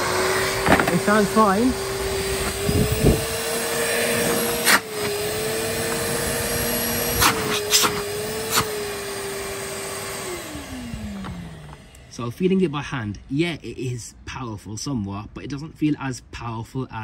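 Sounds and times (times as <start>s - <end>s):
vacuum motor whining: 0.0s - 12.7s.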